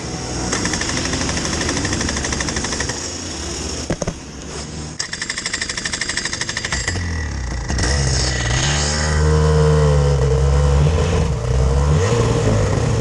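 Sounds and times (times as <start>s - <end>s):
kart engine idling: 0.0s - 5.0s.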